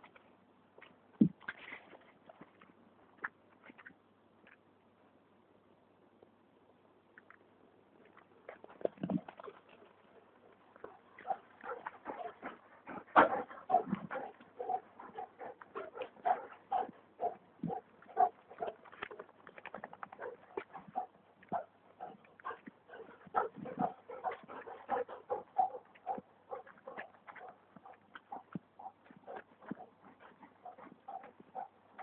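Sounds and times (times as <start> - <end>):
dogs grunting and panting: 8.5 - 32.0.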